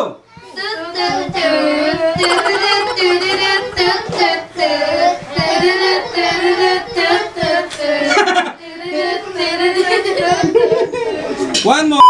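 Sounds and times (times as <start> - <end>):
high-pitched singing over dance music: 0.6 - 7.7.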